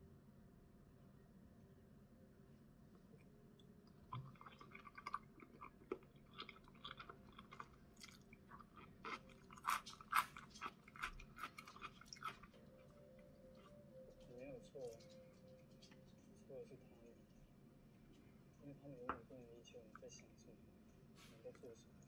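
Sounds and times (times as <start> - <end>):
crisp chewing clicks and smacks: 3.2 - 12.6.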